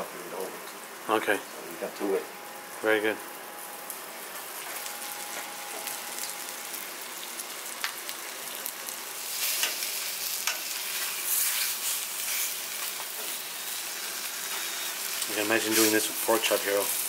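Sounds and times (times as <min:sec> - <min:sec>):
chicken sizzling in oil: 0:03.6 - 0:17.0.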